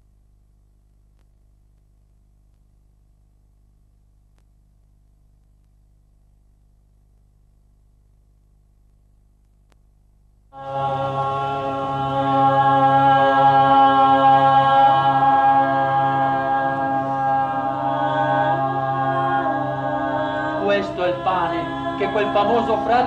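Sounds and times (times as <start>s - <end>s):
low sustained tone: 10.6s - 23.0s
voices singing a slow chant: 10.6s - 23.0s.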